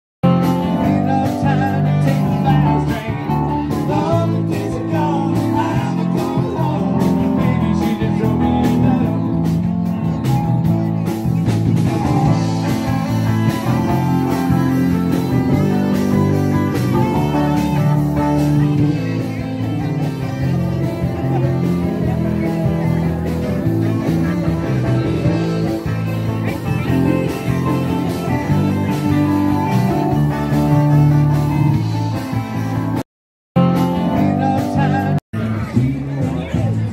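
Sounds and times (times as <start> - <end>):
live band playing blues-rock: 0.2 - 33.0, 33.6 - 36.9.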